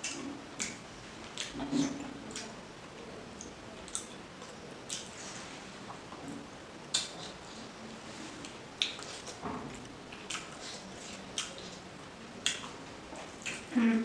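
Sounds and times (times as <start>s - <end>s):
wet eating smacks and clicks: 0.0s - 2.6s, 3.4s - 5.2s, 6.9s - 7.4s, 8.4s - 11.8s, 12.4s - 13.7s.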